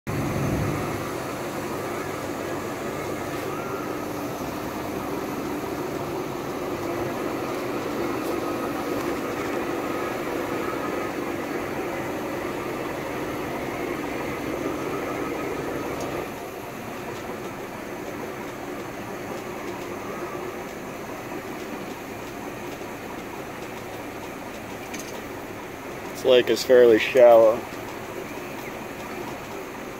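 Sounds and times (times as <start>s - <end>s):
boat engine idling: 0.1s - 29.9s.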